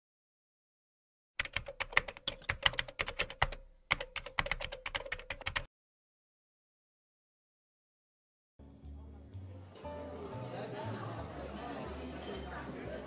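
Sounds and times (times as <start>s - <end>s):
computer keyboard typing: 1.4s - 5.7s.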